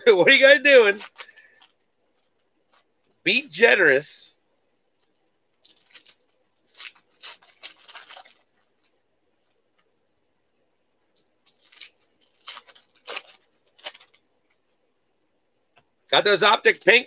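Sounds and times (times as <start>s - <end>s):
plastic wrappers crinkling and tearing: 0.6s - 3.2s, 4.9s - 9.9s, 11.0s - 14.7s.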